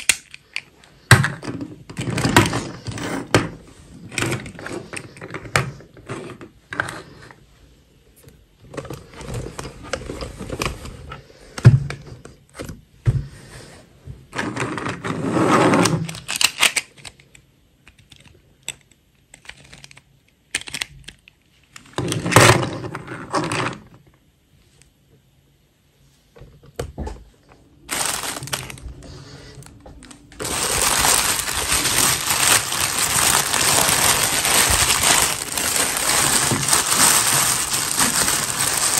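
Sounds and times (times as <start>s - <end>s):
plastic bag crinkling: 27.8s - 38.9s.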